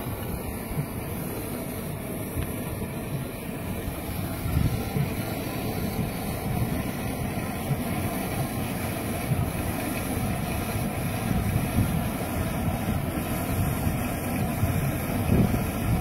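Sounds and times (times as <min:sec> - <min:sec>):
aerator jets churning water: 0:00.0 - 0:16.0.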